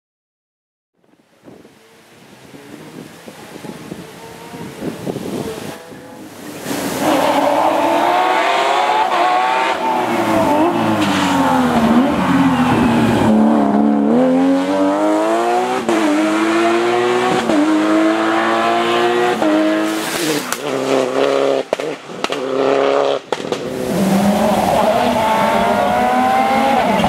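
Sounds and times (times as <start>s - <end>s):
rally car engine passing: 5.5s - 27.0s.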